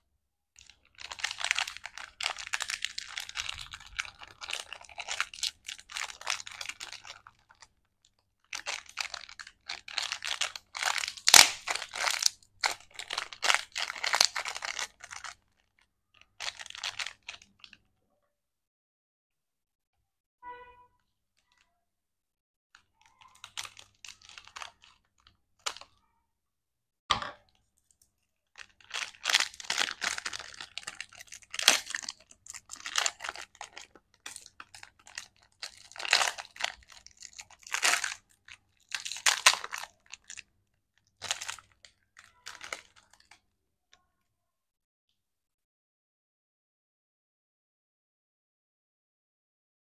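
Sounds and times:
plastic wrapper crinkling and tearing: 0:00.6 - 0:17.8, 0:23.0 - 0:26.0, 0:28.5 - 0:43.4.

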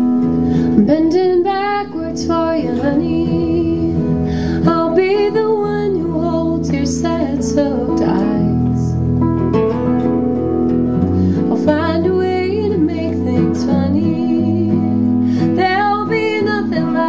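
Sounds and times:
bass guitar: 0:00.0 - 0:01.3, 0:05.9 - 0:15.8
strummed guitar: 0:00.0 - 0:17.0.

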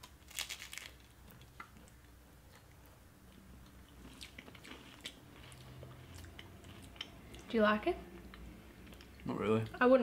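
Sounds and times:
crunching snack: 0:00.1 - 0:01.5
quiet chewing: 0:01.2 - 0:07.5, 0:08.1 - 0:09.4.

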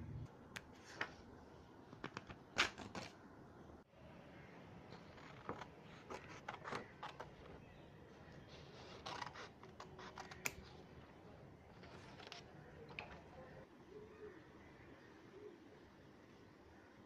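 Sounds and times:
scissors cutting paper: 0:08.8 - 0:10.6.

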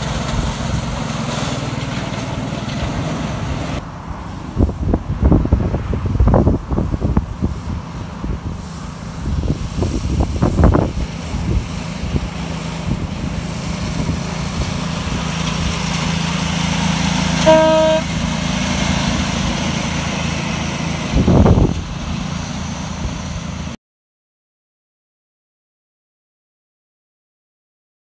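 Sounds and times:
locomotive horn toot: 0:17.2 - 0:18.3.

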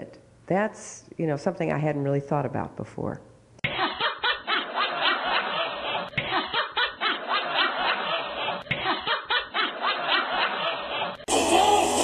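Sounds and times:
person chuckling: 0:05.5 - 0:11.3
music: 0:11.3 - 0:12.0.

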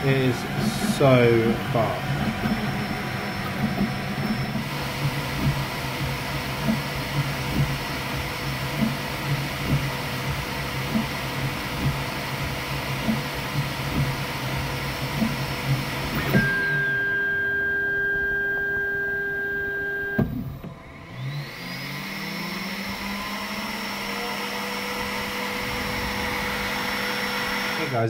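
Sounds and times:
three d printer whirring: 0:00.0 - 0:28.0.

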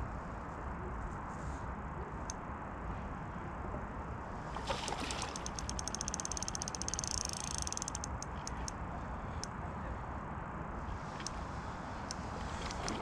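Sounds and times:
fishing reel clicking: 0:05.2 - 0:08.8.

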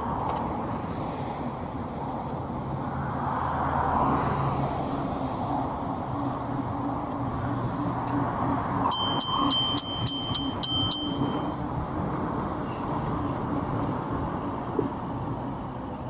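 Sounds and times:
road traffic noise: 0:00.0 - 0:16.0
bicycle bell ringing: 0:08.9 - 0:11.6.

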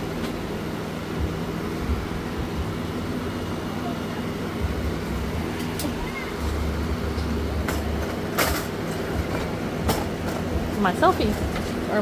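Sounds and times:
low machine hum: 0:00.0 - 0:12.0
deep rumble: 0:04.5 - 0:08.2.

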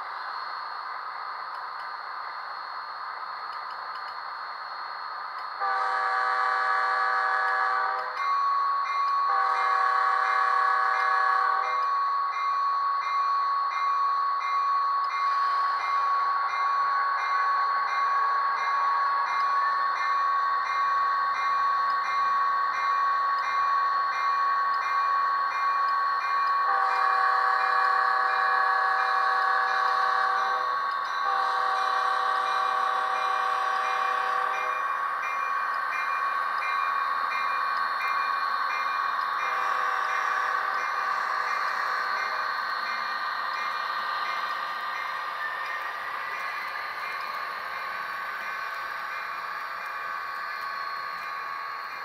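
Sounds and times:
model locomotive diesel sound: 0:00.0 - 0:52.0
light repeating tick: 0:01.5 - 0:02.0, 0:03.4 - 0:04.3, 0:05.3 - 0:05.6, 0:07.4 - 0:09.3, 0:30.9 - 0:31.2
diesel locomotive horn: 0:05.6 - 0:08.1, 0:09.3 - 0:11.6, 0:26.7 - 0:34.7, 0:39.5 - 0:40.8.

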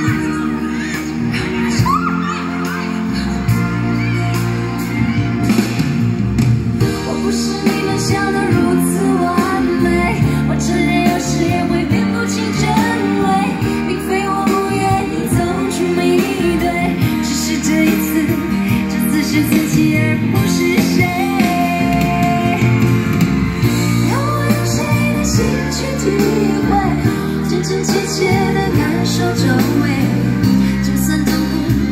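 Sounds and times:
woman singing pop song: 0:00.0 - 0:05.9, 0:06.8 - 0:31.9
guitar and bass: 0:00.0 - 0:31.9.

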